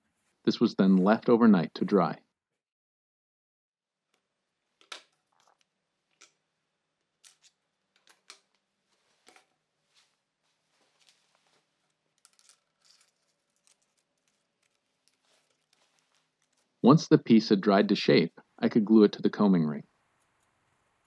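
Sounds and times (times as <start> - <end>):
wooden veneer strip handled: 7.2 - 16.8.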